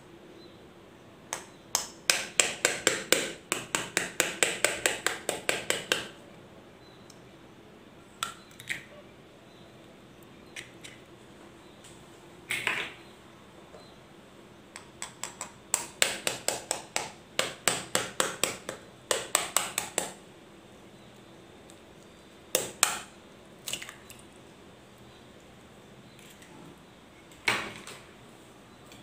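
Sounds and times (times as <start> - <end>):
knife tapping eggshell: 1.3 - 6.1, 14.8 - 20.2.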